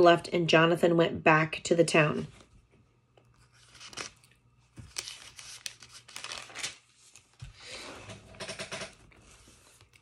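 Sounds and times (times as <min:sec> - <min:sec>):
paper pages rustling: 0:03.3 - 0:07.6, 0:08.8 - 0:10.0.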